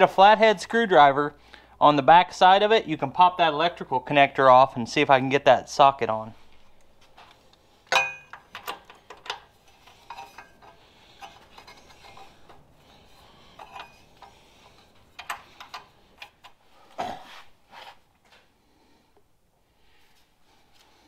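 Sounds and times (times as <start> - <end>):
metal tools clinking on engine: 7.9 - 12.3.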